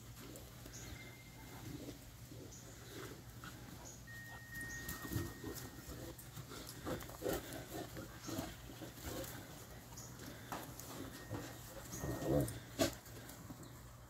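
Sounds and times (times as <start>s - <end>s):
dogs playing and vocalising: 0.0s - 14.0s.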